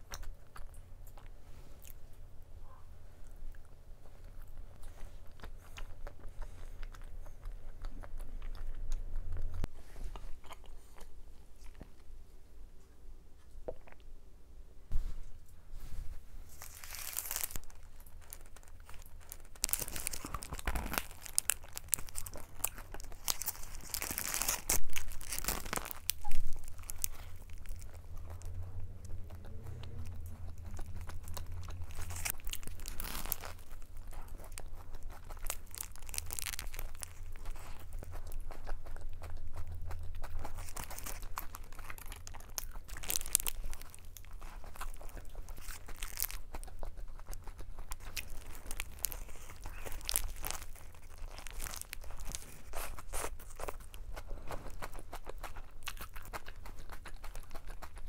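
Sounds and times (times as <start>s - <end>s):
chewing: 0.0s - 14.1s, 16.4s - 58.0s
paper wrapper crinkling and tearing: 16.4s - 38.8s, 40.1s - 58.0s
biting into sandwich: 16.5s - 58.0s.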